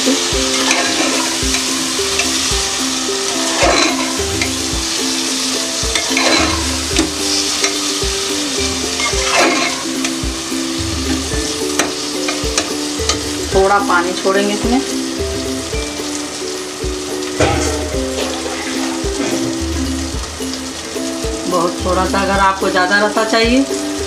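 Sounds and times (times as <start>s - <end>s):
oil sizzling: 0.0s - 24.0s
soft background music with beat: 0.0s - 24.0s
metal spoon scraping a pot: 0.5s - 2.4s, 3.3s - 4.6s, 5.9s - 7.8s, 8.6s - 10.1s, 17.4s - 19.6s.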